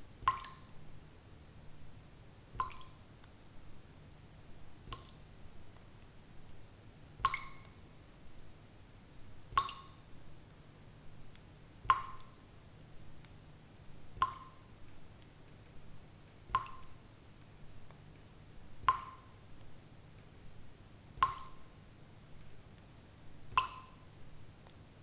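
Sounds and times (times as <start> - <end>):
faint small ticks: 2.6 - 3.4, 4.9 - 6.6, 7.2 - 8.2, 11.3 - 13.4, 14.2 - 20.3, 21.2 - 21.8, 23.5 - 24.9
water drops plinking: 21.2 - 21.6.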